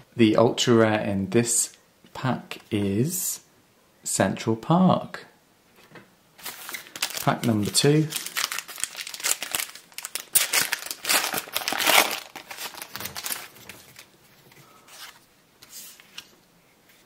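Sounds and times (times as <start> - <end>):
faint handling of cards: 5.7 - 17.0
foil wrapper tearing and crinkling: 6.4 - 14.1.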